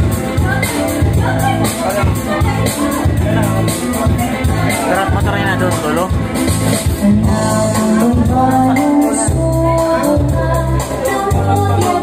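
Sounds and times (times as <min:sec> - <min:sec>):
electronic keyboard accompaniment: 0:00.0 - 0:12.0
man singing: 0:06.9 - 0:12.0.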